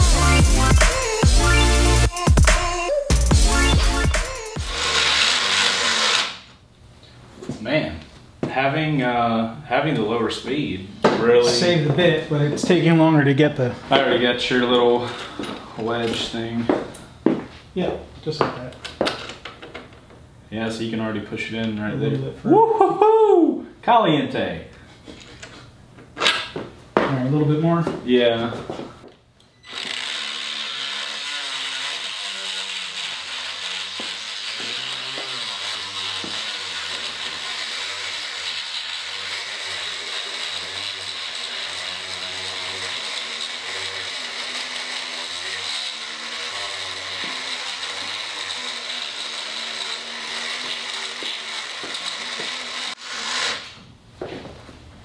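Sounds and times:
rotary tool grinding metal: 0.0s - 2.5s, 3.1s - 6.5s, 29.5s - 53.8s.

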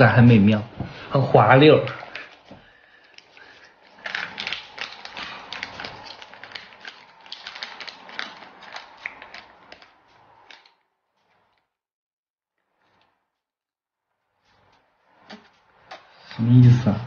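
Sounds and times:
plastic packaging crinkling: 1.8s - 11.7s.

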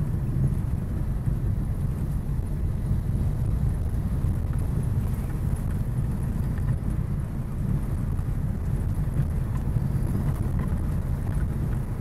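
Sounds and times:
car driving low rumble: 0.0s - 12.0s.

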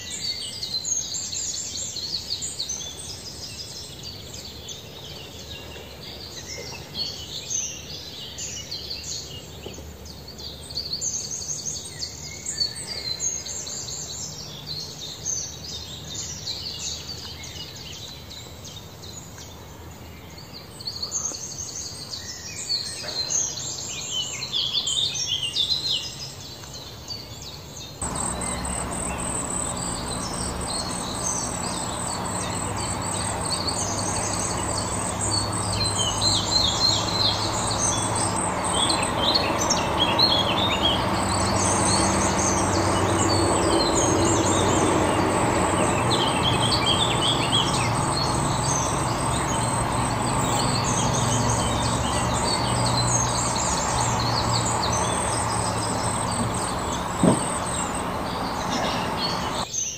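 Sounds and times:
steady low hum: 28.0s - 59.6s
songbirds singing and chirping: 28.0s - 59.7s.

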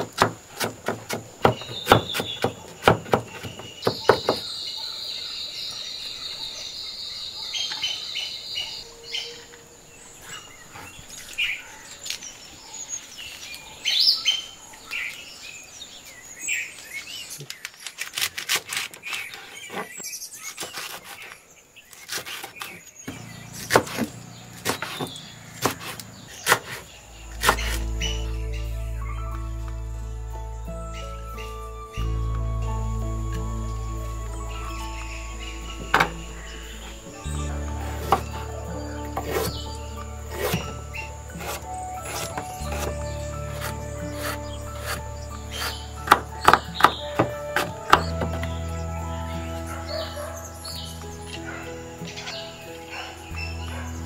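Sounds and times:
knife chopping on wooden board: 0.0s - 4.4s, 22.1s - 26.8s
small birds chirping: 0.0s - 54.0s
background music: 27.2s - 54.0s.

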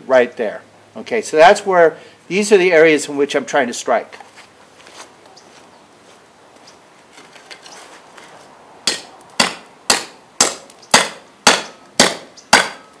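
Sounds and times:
blade chopping into hard wood: 8.8s - 13.0s.

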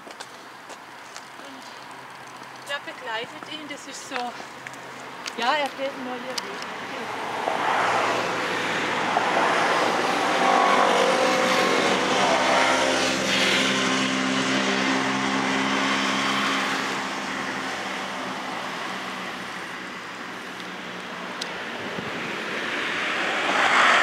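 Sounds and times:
road noise: 0.0s - 24.0s
car driving past: 7.0s - 19.5s, 21.9s - 24.0s.

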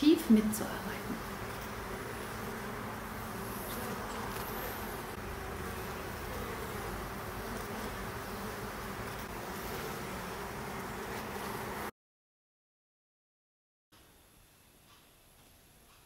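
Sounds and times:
bees buzzing: 0.0s - 11.9s.

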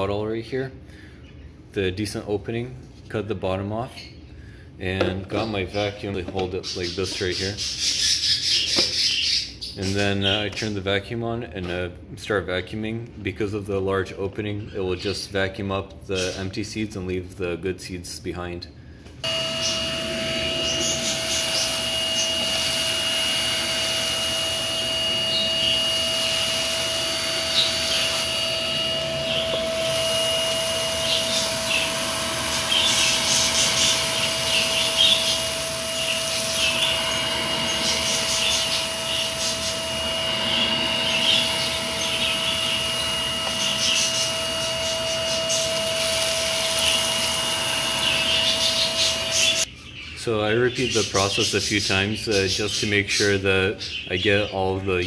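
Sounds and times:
vacuum cleaner whining: 19.2s - 49.7s.

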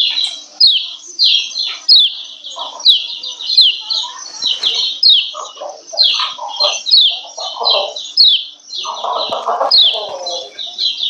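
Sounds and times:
bird chattering: 0.0s - 11.0s
bird high repeated calls: 0.0s - 11.0s.

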